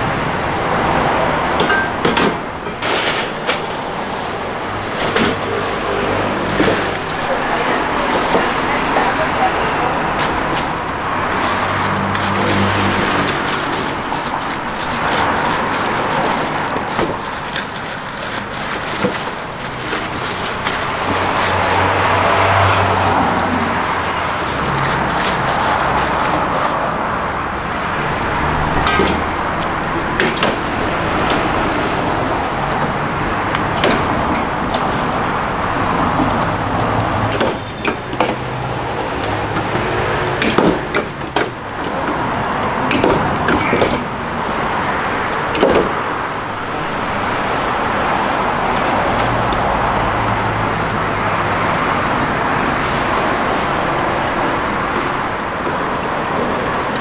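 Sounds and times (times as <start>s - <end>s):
street traffic hum: 0.0s - 57.0s
skewers clicking in steel trough: 28.5s - 31.5s, 32.6s - 35.2s, 35.9s - 44.1s.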